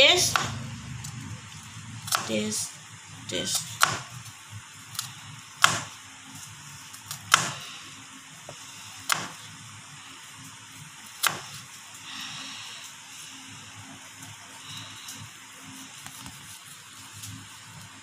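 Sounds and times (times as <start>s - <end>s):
knife chopping on cutting board: 0.3s - 0.6s, 2.1s - 2.3s, 3.8s - 4.1s, 5.6s - 5.9s, 7.2s - 7.6s, 9.1s - 9.4s, 11.2s - 11.6s.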